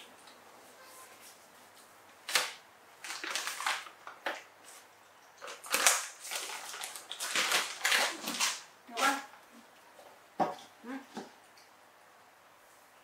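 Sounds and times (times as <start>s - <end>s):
plastic packet crinkling: 2.3s - 4.5s, 5.4s - 9.1s.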